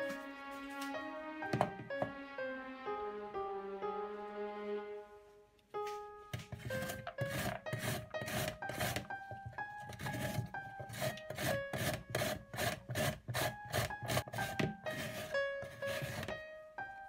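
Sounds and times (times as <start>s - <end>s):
papaya rasping on a grater: 6.6s - 9.1s, 10.0s - 16.3s.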